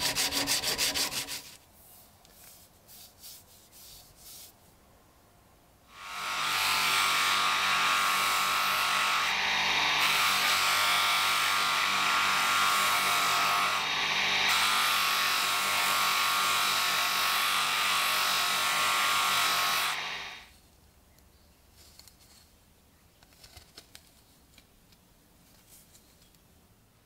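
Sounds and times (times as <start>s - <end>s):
wood grinding on buffing wheel: 0.0s - 1.5s
bench motor whine: 9.2s - 15.0s, 19.8s - 20.5s.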